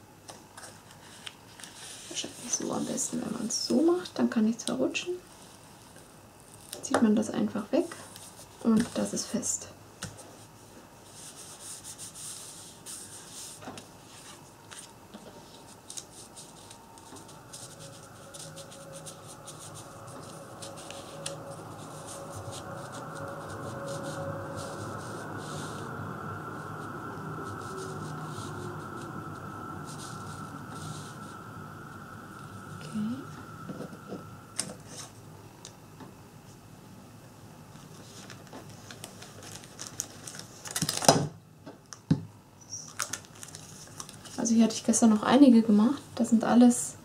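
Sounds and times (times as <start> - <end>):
faint steady hum: 0.0 - 47.0
hands rubbing paper card: 10.2 - 25.9
paper sliding and rustling: 11.1 - 25.8.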